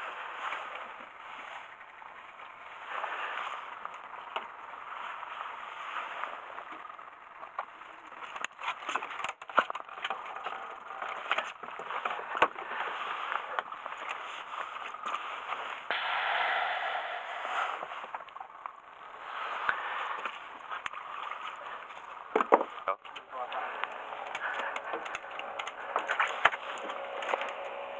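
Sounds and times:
wind and sea hiss: 0:15.9 - 0:18.1.

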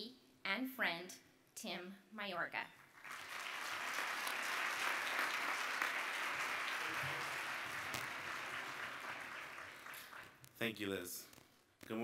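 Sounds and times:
audience applauding: 0:02.9 - 0:10.4.

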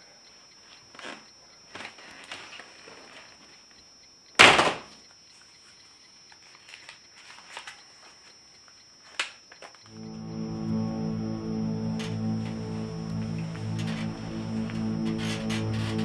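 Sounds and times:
low sustained music: 0:09.9 - 0:16.0.

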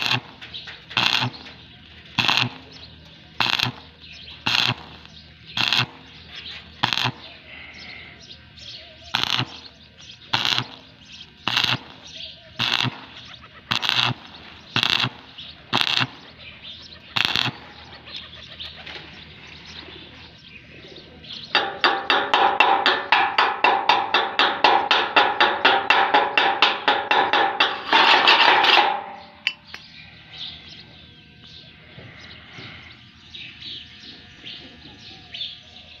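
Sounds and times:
chipping hammer tapping metal: 0:00.0 - 0:07.3, 0:09.1 - 0:16.3, 0:17.2 - 0:17.7, 0:21.5 - 0:29.9
welding arc crackling: 0:00.0 - 0:19.7, 0:21.6 - 0:29.6.

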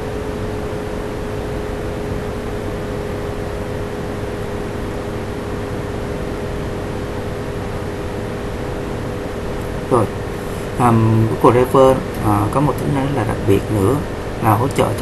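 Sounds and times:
constant hum: 0:00.0 - 0:15.0
steady hiss: 0:06.1 - 0:15.0.

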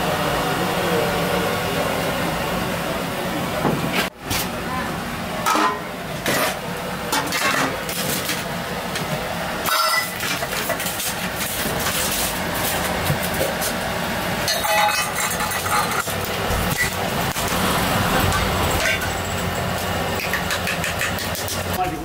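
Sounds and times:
street traffic hum: 0:00.0 - 0:22.0
metal pots and lids clanking: 0:05.4 - 0:08.4, 0:09.6 - 0:13.7, 0:14.4 - 0:17.6, 0:18.2 - 0:21.7.

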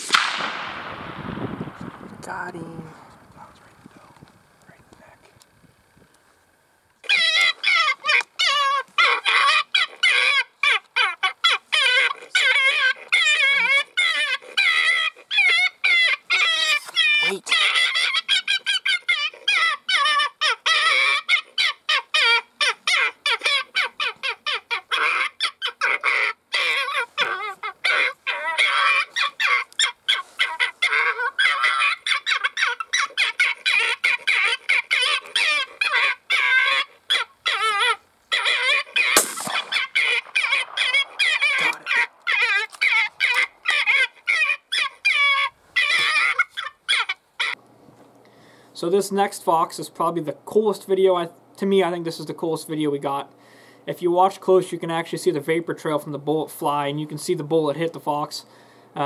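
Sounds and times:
electronic bird distress calls: 0:07.0 - 0:47.6.

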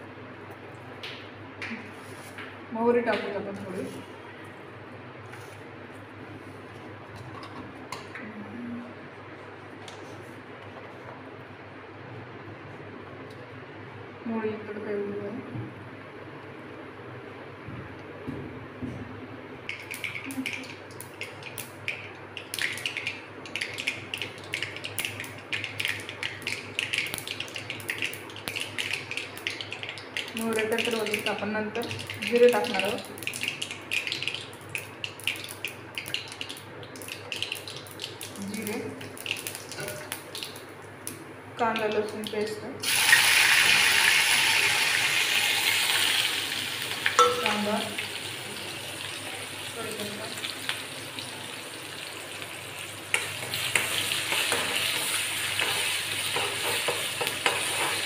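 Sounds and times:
hot oil sizzling loudly: 0:42.8 - 0:58.0.

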